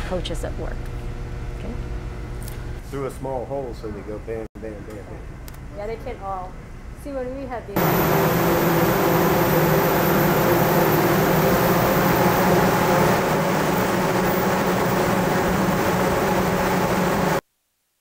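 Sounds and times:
blower air rushing: 7.8s - 17.4s
low hum: 7.8s - 17.4s.

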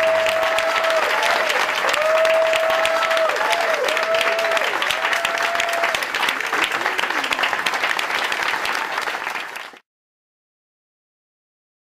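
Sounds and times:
crowd applauding: 0.0s - 9.8s
voices rising over clapping: 0.0s - 9.8s.

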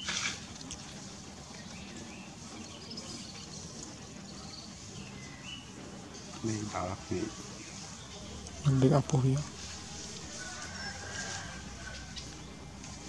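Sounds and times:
outdoor background noise: 0.0s - 13.0s.

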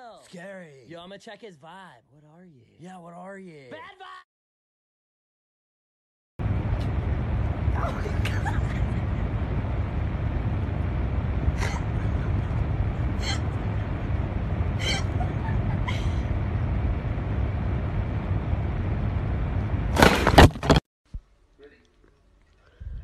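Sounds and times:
low rumble: 6.4s - 20.5s.

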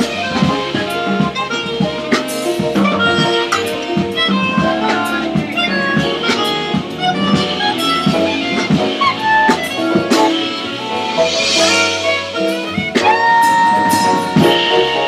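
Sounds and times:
bass: 0.0s - 15.0s
drum strokes: 0.0s - 15.0s
melodic lead line: 0.0s - 15.0s
piano: 0.0s - 15.0s
cymbal wash: 10.2s - 15.0s.

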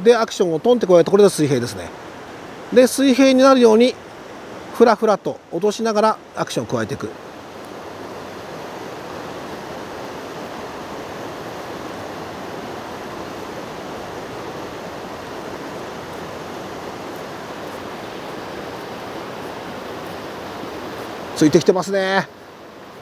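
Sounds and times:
river rushing over rapids: 0.0s - 23.0s.

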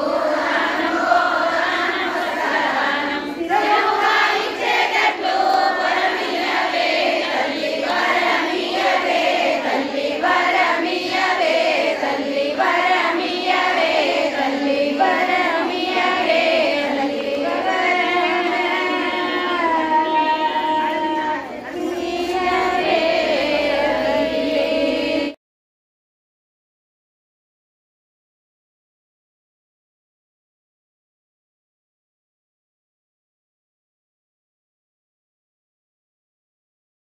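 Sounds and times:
group of women singing along: 0.0s - 25.4s
woman singing into a microphone: 14.4s - 25.4s.

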